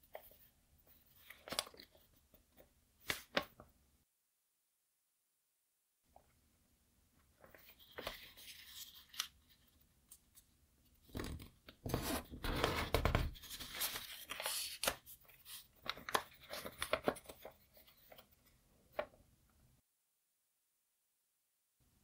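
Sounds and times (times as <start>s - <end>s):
paper rustling and crackling: 0.0s - 3.6s, 7.4s - 10.2s, 11.1s - 19.2s.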